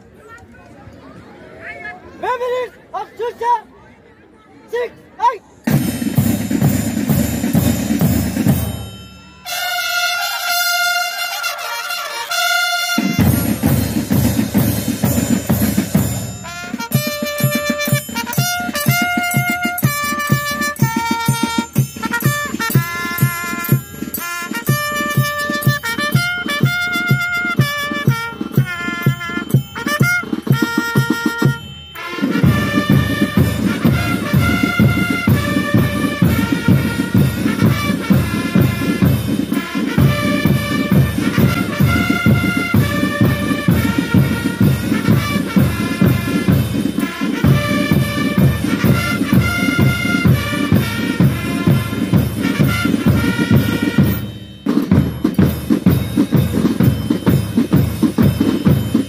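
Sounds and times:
marching band playing: 5.6 - 59.0.

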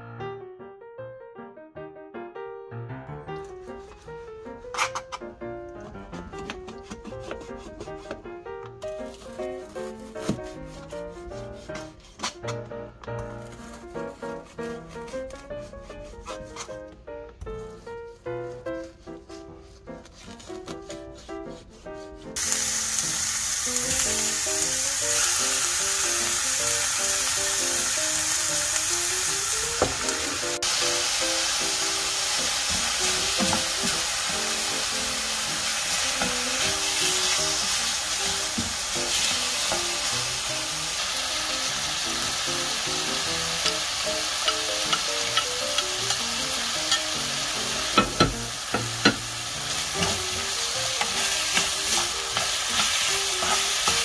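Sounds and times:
spatula stirring: 3.4 - 8.3, 8.9 - 12.5, 13.2 - 22.6, 31.8 - 40.6, 42.8 - 54.0
pork sizzling in a frying pan: 3.6 - 5.2, 22.4 - 54.0.

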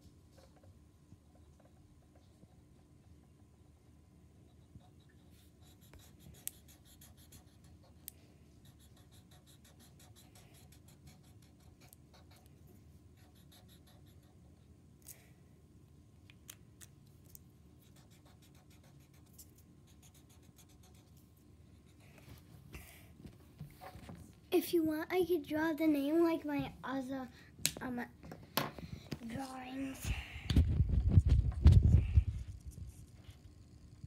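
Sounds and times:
marker scribbling on paper: 4.5 - 12.5, 13.2 - 14.4, 17.8 - 21.1.

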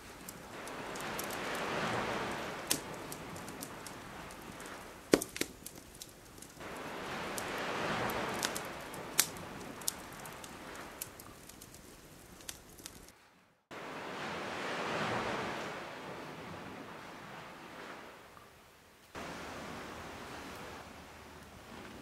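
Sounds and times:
campfire crackling with pops: 0.0 - 13.1
rushing water waves: 0.0 - 22.0.

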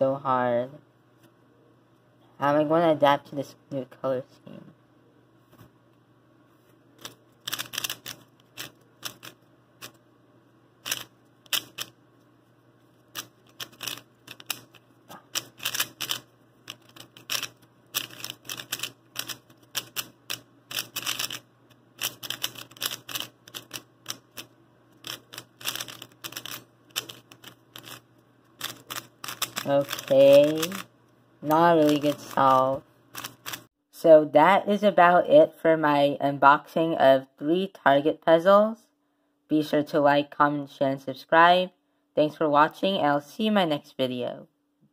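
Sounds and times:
puzzle cube plastic clicks: 7.0 - 10.0, 10.8 - 11.9, 13.2 - 21.4, 22.0 - 28.0, 28.6 - 30.9.

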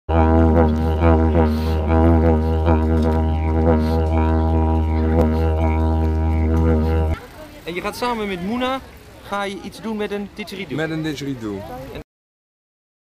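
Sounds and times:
didgeridoo drone: 0.1 - 7.2.

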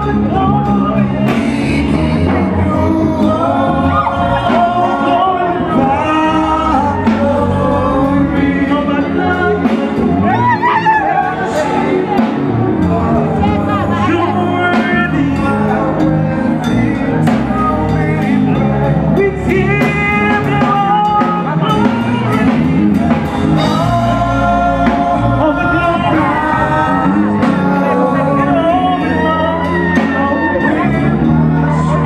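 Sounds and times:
loud music with singing: 0.0 - 32.0.

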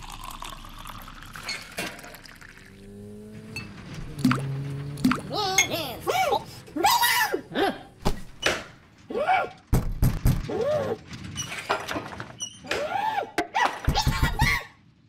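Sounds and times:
cartoon character squawks: 5.1 - 7.9
knocks and thuds: 8.0 - 8.8, 9.7 - 10.7.

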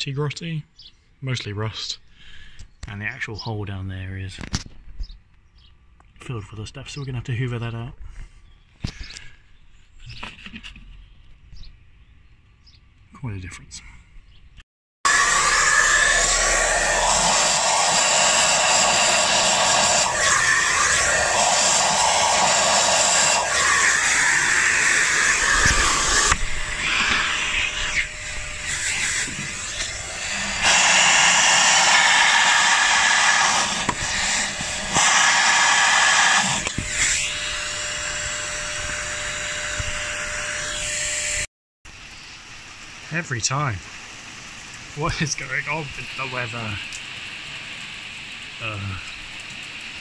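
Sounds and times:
vacuum cleaner whine: 15.1 - 41.5.

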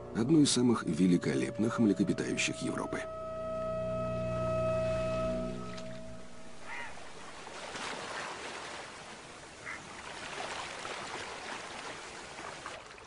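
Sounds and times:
water splashing: 5.0 - 13.0.

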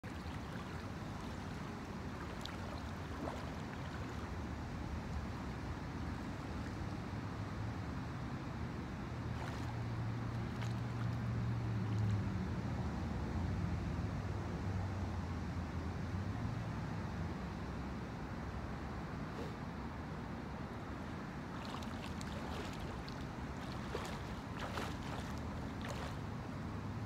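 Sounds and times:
lake water lapping at shore: 0.0 - 6.8, 9.2 - 12.4, 20.9 - 26.7.

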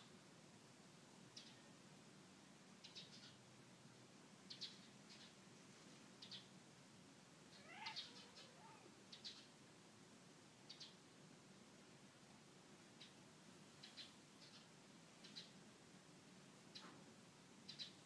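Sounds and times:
small birds chirping: 1.3 - 1.7, 2.8 - 3.5, 4.4 - 5.5, 6.1 - 6.6, 7.5 - 9.6, 10.6 - 11.0, 12.8 - 15.6, 16.6 - 17.0, 17.6 - 18.0
cat meowing: 7.5 - 8.9.

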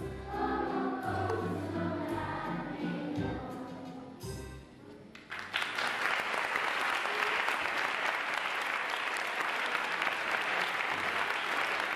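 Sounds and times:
audience applauding: 5.2 - 11.9.

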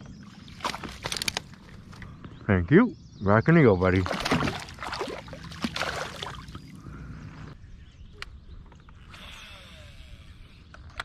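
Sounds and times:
water lapping against kayak hull: 3.9 - 7.0.

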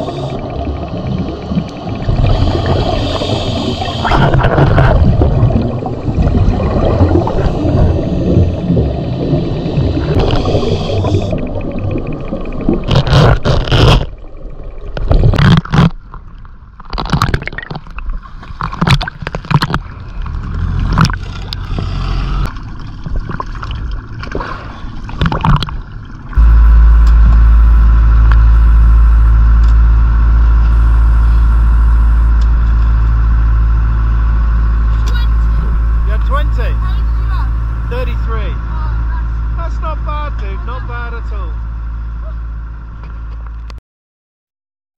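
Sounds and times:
boat engine droning: 0.0 - 12.9, 19.8 - 23.0, 26.0 - 43.8
water sloshing and splashing: 0.0 - 27.7.

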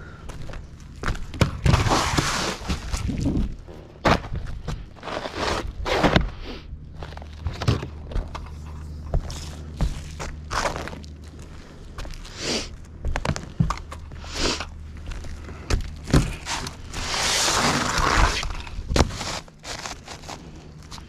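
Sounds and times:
steady low hum: 0.0 - 21.0
knocks and scraping on wood: 15.7 - 20.3.

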